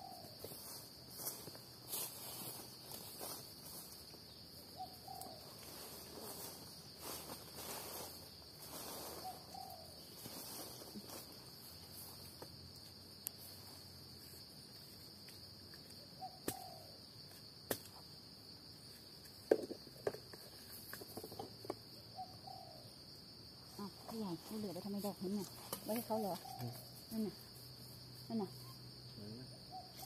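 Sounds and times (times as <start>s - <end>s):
forest insects droning: 0.0s - 30.0s
digging tool knocking in soil: 19.4s - 21.8s.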